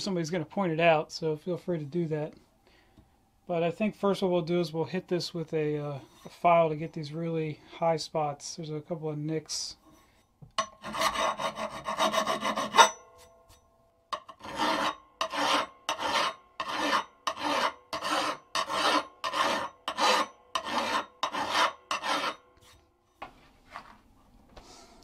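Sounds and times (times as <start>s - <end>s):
hand file rasping on steel: 10.6s - 13.3s, 14.1s - 22.8s.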